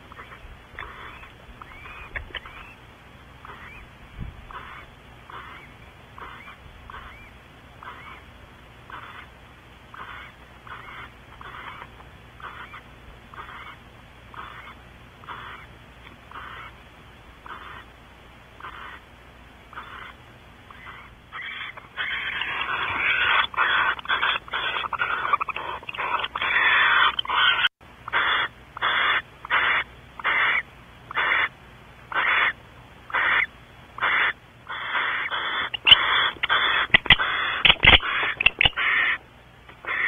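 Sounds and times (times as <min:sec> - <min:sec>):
owl hissing calls: 0:00.0 - 0:02.8, 0:03.4 - 0:03.9, 0:04.5 - 0:09.3, 0:09.9 - 0:15.7, 0:16.3 - 0:16.8, 0:17.4 - 0:17.9, 0:18.6 - 0:19.1, 0:19.7 - 0:39.2, 0:39.8 - 0:40.0.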